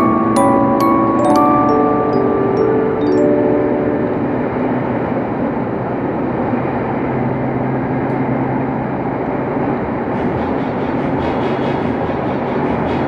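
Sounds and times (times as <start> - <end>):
low hum from train car: 0.0 - 13.0
train wheels rumbling on rail: 8.8 - 13.0.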